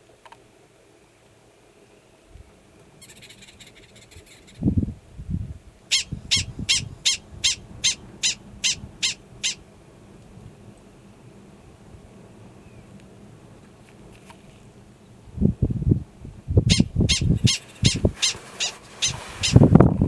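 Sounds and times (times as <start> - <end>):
prairie dog high yips: 5.9 - 9.6, 16.7 - 19.6.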